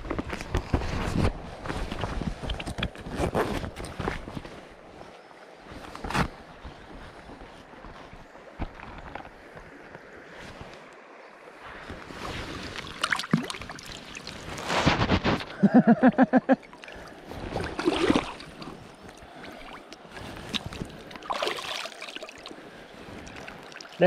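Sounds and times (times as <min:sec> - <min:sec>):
river water splashing: 0:08.2 - 0:24.0.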